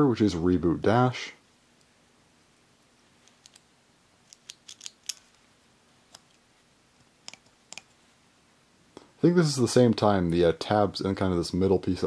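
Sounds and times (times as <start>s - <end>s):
plastic top parts clicking: 4.3s - 5.4s, 7.2s - 7.9s.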